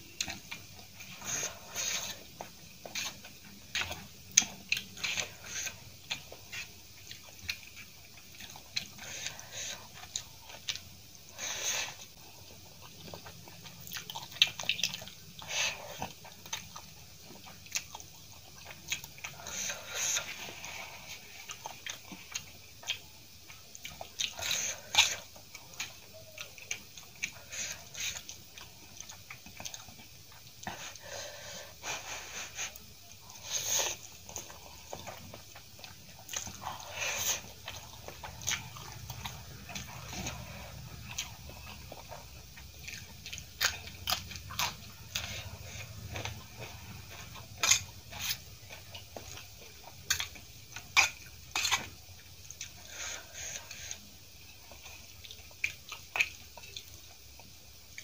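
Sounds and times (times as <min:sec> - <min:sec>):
chewing and biting noodles: 0:33.3 - 0:51.9.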